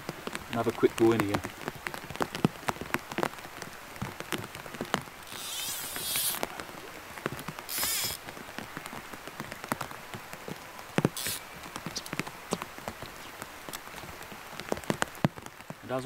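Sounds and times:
rain pattering on plastic: 0.0s - 16.0s
fly line swishing: 5.3s - 6.4s, 7.7s - 8.2s, 11.2s - 11.4s.

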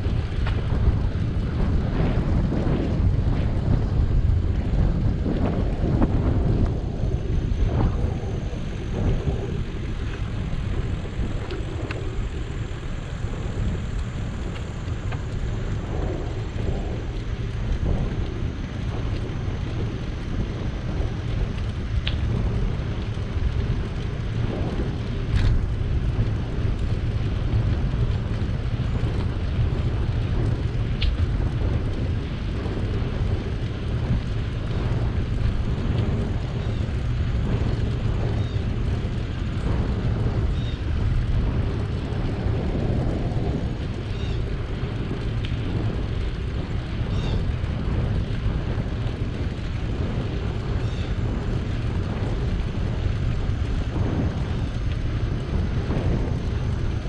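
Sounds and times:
wind rumbling on microphone: 0.0s - 57.0s
faint clicks: 21.3s - 24.2s, 25.0s - 56.7s.

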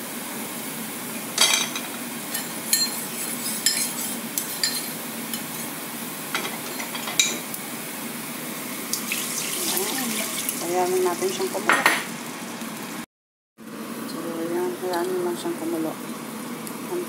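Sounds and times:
garlic sizzling in hot oil: 0.1s - 13.0s
utensil scraping a pan: 2.4s - 4.9s.

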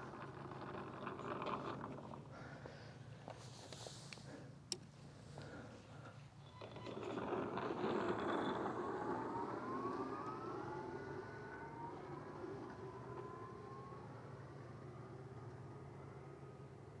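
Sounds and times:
electric motors whining: 6.5s - 16.8s.

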